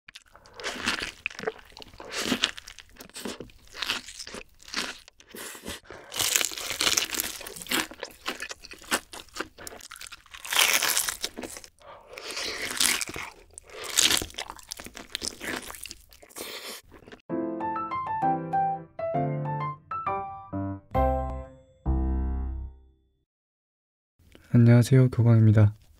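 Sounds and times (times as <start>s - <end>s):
chewing: 0.1s - 17.2s
crispy food crunching: 0.1s - 17.2s.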